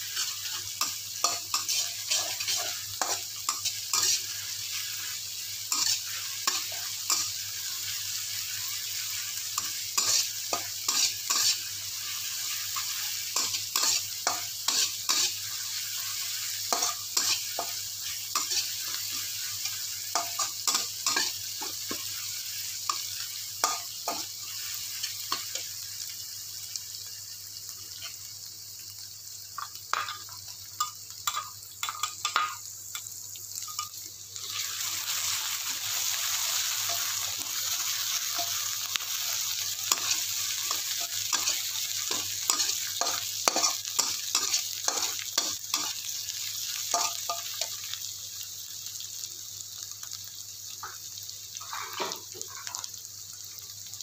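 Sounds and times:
food sizzling in hot oil: 0.0s - 54.0s
metal spatula scraping a wok: 0.1s - 4.3s, 5.7s - 7.3s, 10.9s - 11.6s.

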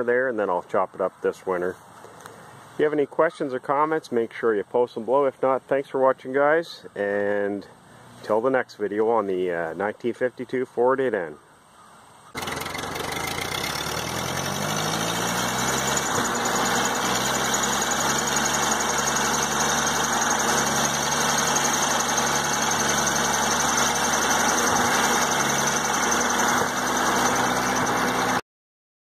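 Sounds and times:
tractor engine running: 12.4s - 28.4s.

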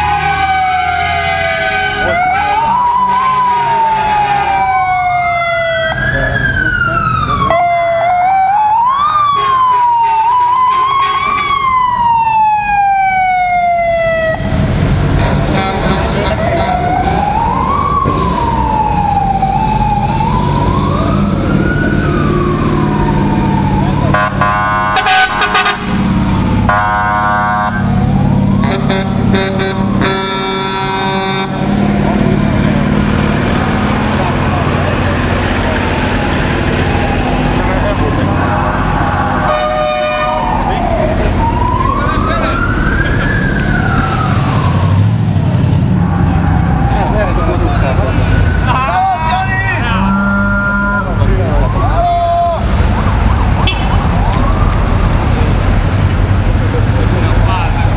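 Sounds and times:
engine rumble of passing vehicles: 0.0s - 57.9s
wailing vehicle siren: 0.0s - 57.9s
short horn blasts: 15.2s - 16.8s, 24.2s - 26.0s, 26.7s - 27.8s, 28.6s - 31.6s, 39.5s - 40.4s, 49.9s - 51.1s.

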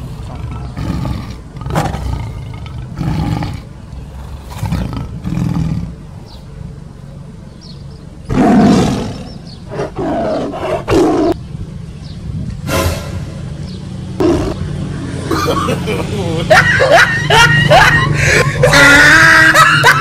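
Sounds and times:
tiger roaring and growling: 0.0s - 6.0s, 8.3s - 11.4s, 14.2s - 14.6s.

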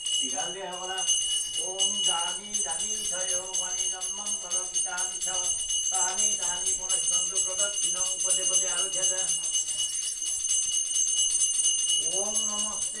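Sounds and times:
hand bell ringing: 0.0s - 13.0s
person chanting: 0.2s - 9.6s, 12.0s - 13.0s.

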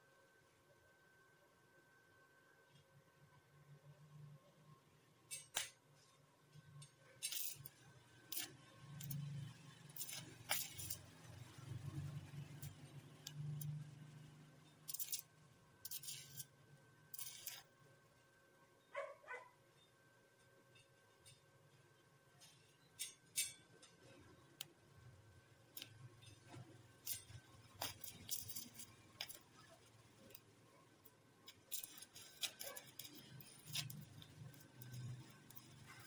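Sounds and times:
welding crackling bursts: 9.8s - 11.4s, 15.9s - 16.5s, 17.1s - 17.7s.

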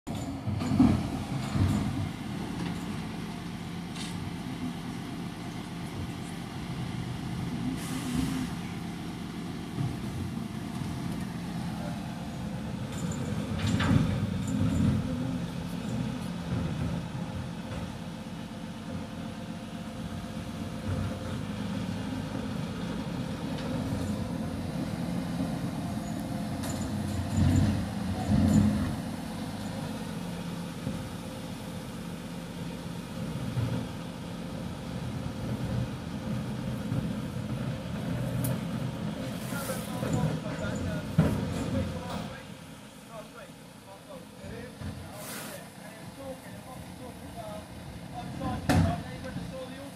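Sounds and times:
diesel engine running: 0.1s - 49.9s
short hiss: 45.2s - 45.7s.

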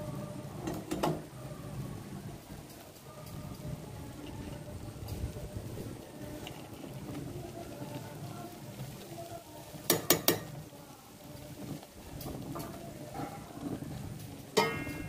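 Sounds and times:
ladle stirring rice in metal pot: 5.8s - 15.0s
ladle clinking on metal pot: 9.9s - 10.6s, 14.6s - 15.0s.

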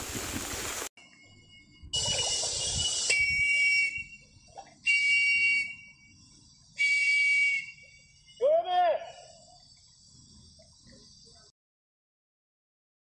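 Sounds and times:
shrill whistle blasts: 1.0s - 9.5s.

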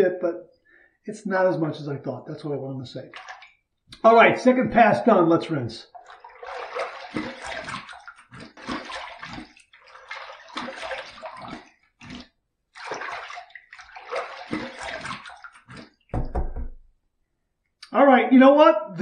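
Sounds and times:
water splashing on face: 3.0s - 3.6s, 5.9s - 16.5s.

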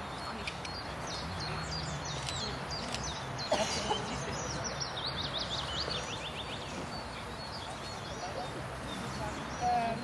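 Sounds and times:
outdoor background noise: 0.0s - 10.0s
small birds chirping: 0.0s - 10.0s.

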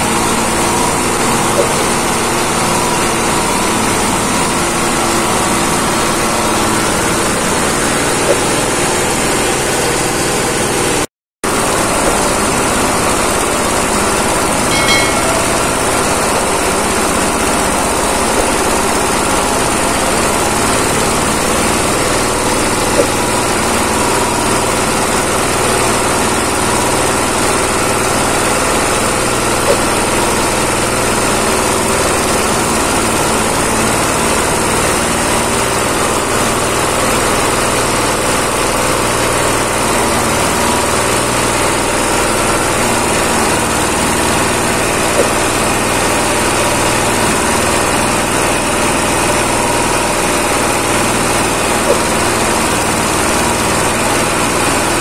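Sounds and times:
grinding mill running: 0.0s - 55.0s
sharp knocks: 14.7s - 16.3s.

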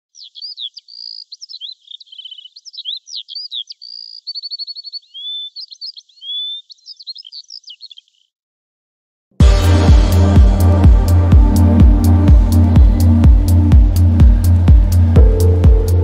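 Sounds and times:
songbird singing: 0.0s - 8.4s.

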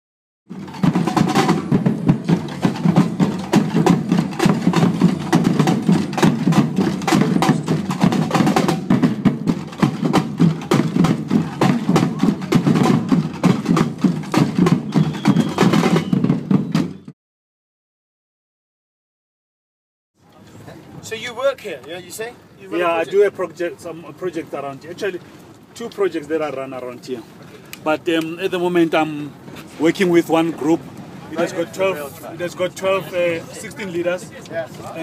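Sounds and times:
drumming group playing: 0.5s - 17.1s.

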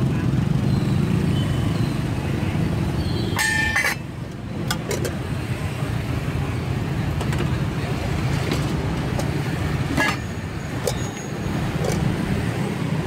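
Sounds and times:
street traffic rumble: 0.0s - 13.0s
metal lid scraping onto pan: 9.9s - 11.0s.

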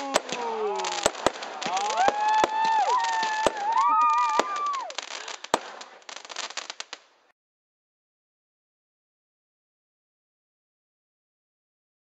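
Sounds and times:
person shrieking excitedly: 0.0s - 5.0s
fireworks bangs and crackle: 0.0s - 7.3s.

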